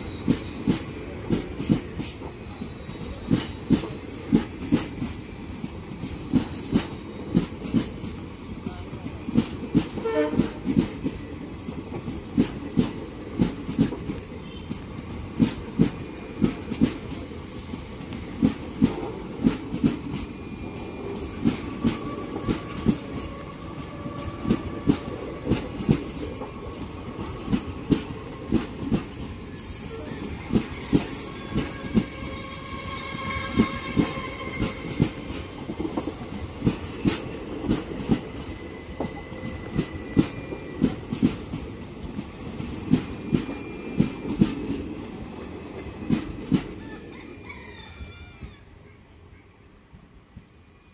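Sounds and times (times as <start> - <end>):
train wheels clacking: 0.0 - 46.8
train rolling rumble: 0.0 - 47.4.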